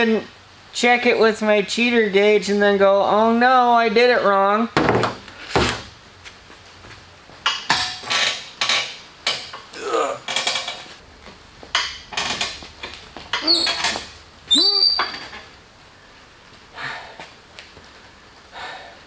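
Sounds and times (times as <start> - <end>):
metallic creaks and clanks: 7.4 - 11.0, 11.7 - 14.2, 14.8 - 15.6
falling squeal: 13.4 - 15.3.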